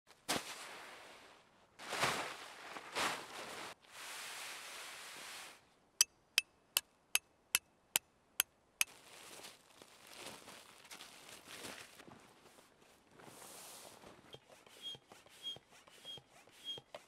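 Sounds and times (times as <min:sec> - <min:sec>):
plastic groundsheet rustling: 0:00.1 - 0:05.6, 0:08.9 - 0:14.3.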